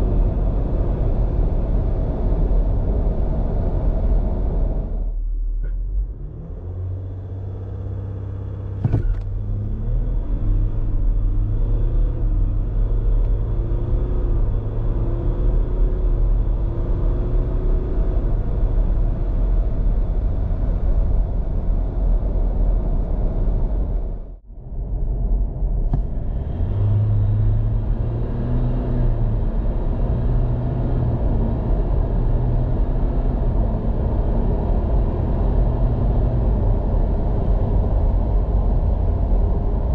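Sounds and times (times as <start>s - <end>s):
diesel engine accelerating: 0.0s - 39.9s.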